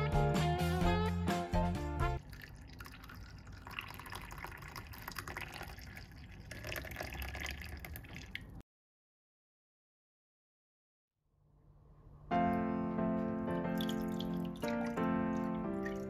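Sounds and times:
background music: 0.0s - 2.2s, 12.3s - 16.0s
tea pouring into cup: 2.2s - 8.6s, 13.7s - 16.0s.

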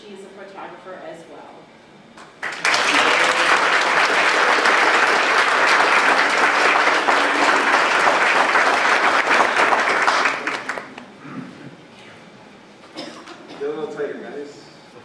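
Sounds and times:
audience applauding: 2.4s - 11.1s.

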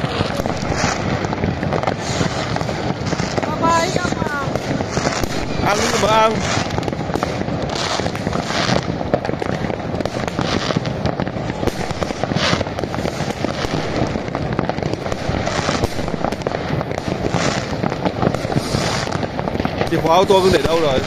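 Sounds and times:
firecrackers crackling: 0.0s - 21.0s
firework hissing: 0.0s - 21.0s
rocket bursts popping: 0.0s - 21.0s.

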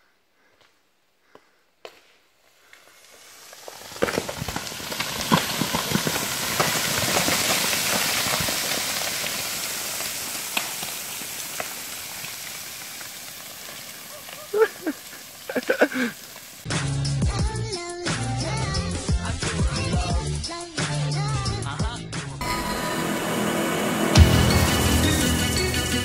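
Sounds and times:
stones and gravel falling: 2.7s - 16.7s
rocks knocking: 3.6s - 16.1s.

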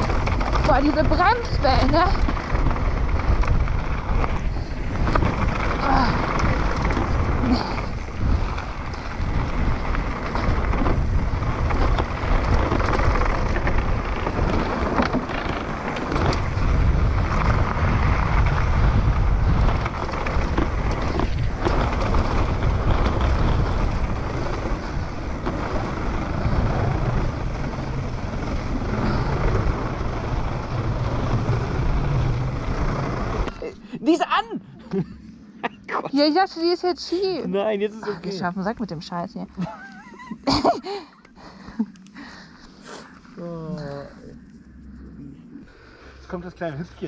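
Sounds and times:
bike knocks and rattles: 0.0s - 33.6s
bike tyres rumbling over dirt: 0.0s - 33.9s
wind buffeting microphone: 0.0s - 34.0s.

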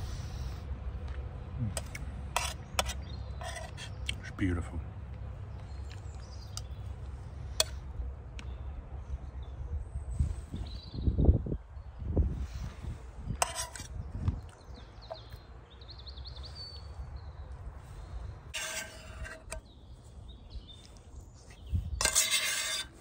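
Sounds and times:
small birds chirping: 1.6s - 22.4s
wind rumble on microphone: 7.8s - 15.1s, 20.1s - 22.1s.

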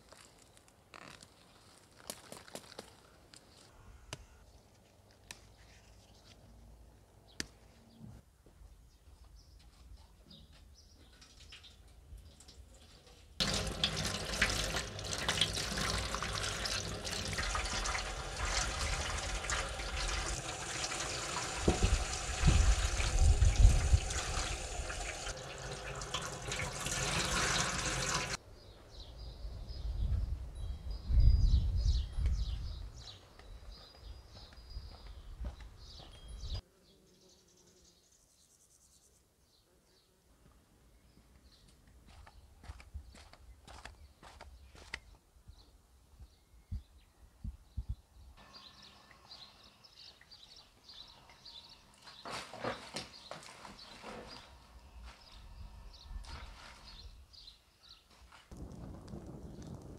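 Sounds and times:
tap water running into sink: 13.4s - 28.4s.

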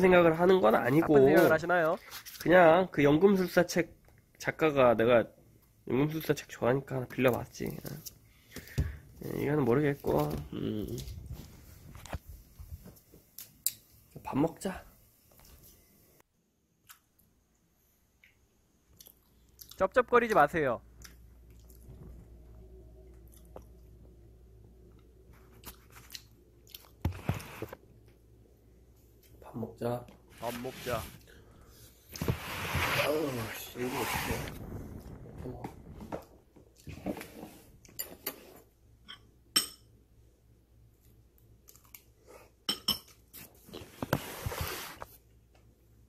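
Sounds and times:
chewing and lip-smacking: 18.2s - 19.8s, 21.0s - 22.0s, 23.0s - 24.0s
hissing noise: 32.6s - 36.2s.

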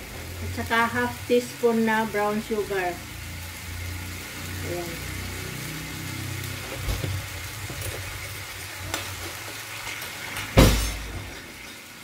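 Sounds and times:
sauce sizzling in a wok: 0.0s - 12.0s.

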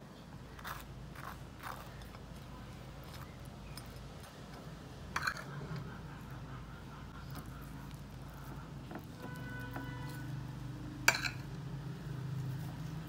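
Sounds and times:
metal spoon scraping toast: 0.5s - 5.9s.

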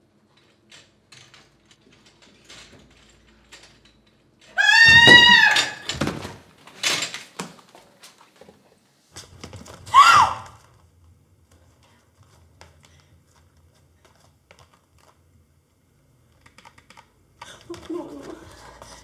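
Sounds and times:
woman's shrill cry: 4.6s - 5.9s, 9.9s - 10.6s.

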